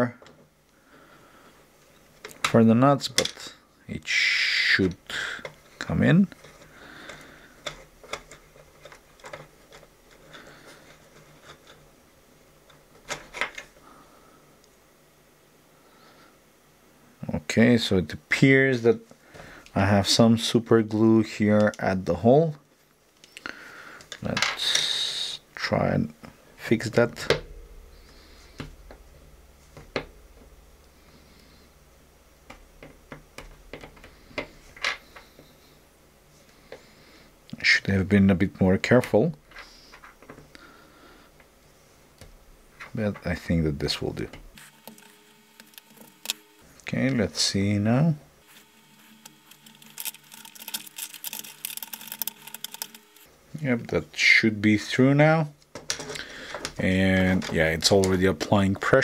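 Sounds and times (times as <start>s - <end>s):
metal pick clicking and scratching: 44.6s - 46.6s, 48.6s - 53.3s.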